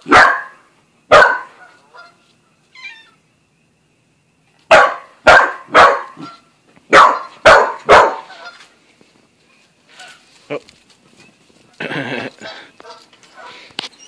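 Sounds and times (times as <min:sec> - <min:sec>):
dog barking: 0:00.0 - 0:01.8, 0:04.7 - 0:08.4, 0:12.8 - 0:13.6.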